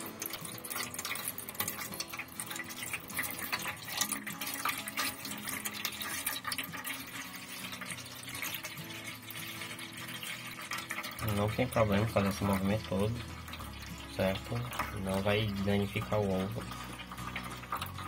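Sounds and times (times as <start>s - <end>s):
water pouring and splashing: 0.0s - 18.0s.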